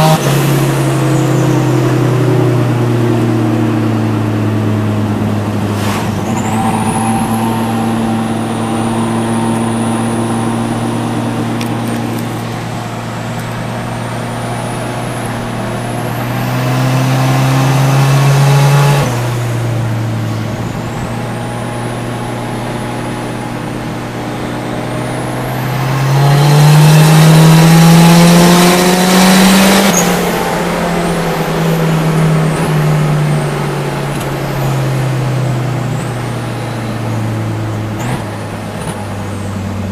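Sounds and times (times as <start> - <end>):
car engine accelerating: 0.0 - 39.9
thin high whistle: 5.8 - 11.8.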